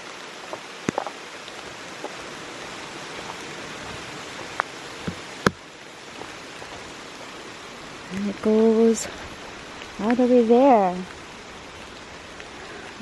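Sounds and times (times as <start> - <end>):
steady rain hiss: 0.0 - 13.0.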